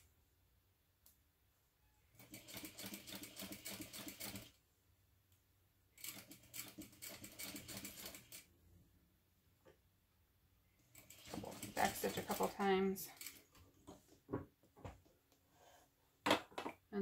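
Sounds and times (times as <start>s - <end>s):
sewing machine stitching: 2.2s - 4.6s, 6.0s - 8.5s, 10.9s - 13.5s.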